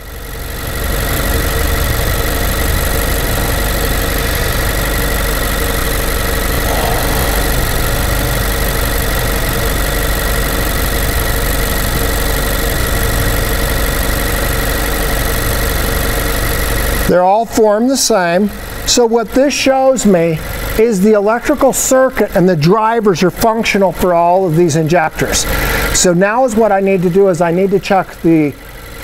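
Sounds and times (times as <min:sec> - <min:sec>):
car engine idling: 0:00.0 - 0:17.1.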